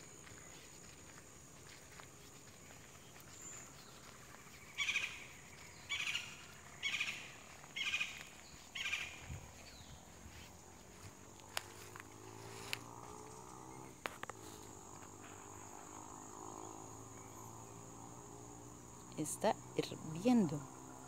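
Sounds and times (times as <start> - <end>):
faint background noise: 0.0 - 21.0
bird calling: 2.1 - 10.5.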